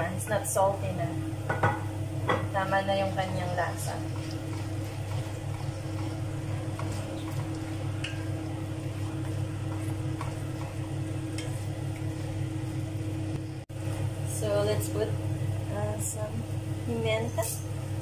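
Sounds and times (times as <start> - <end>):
steady low hum: 0.0 - 18.0
food sizzling in frying pan: 1.4 - 15.8.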